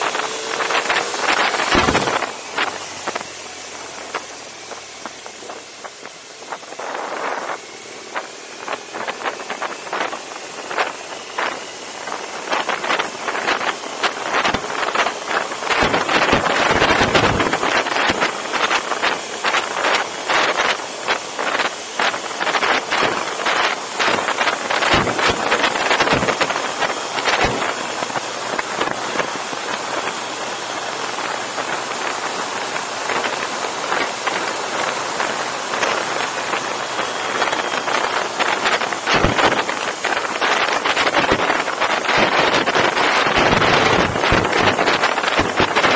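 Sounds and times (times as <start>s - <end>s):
faint motorcycle engine hum: 0.0s - 45.9s
wind buffeting microphone: 0.0s - 45.9s.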